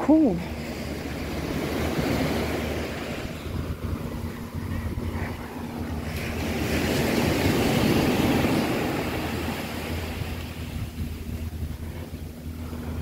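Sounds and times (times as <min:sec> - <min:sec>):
wave breaking on sand: 0:01.1 - 0:11.0.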